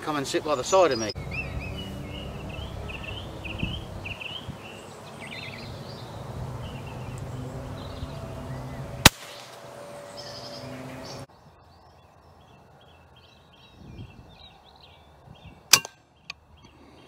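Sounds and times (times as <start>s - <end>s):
birds chirping: 0.0s - 17.0s
air rifle shot: 9.0s - 9.6s.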